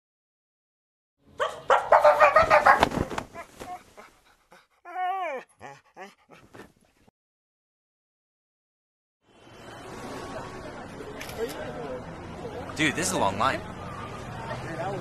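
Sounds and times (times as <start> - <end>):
small dog barking: 1.4 - 2.9
dog yelping: 1.4 - 6.6
dog whining: 3.3 - 6.7.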